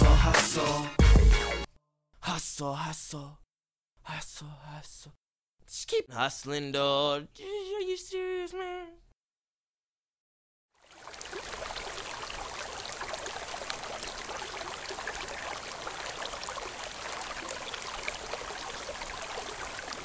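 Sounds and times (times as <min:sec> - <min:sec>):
water trickling and splashing: 0:10.8 - 0:20.0.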